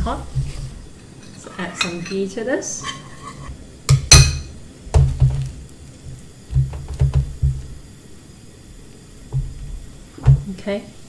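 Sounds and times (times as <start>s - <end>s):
metal spoon clinking on pan: 1.2s - 4.5s.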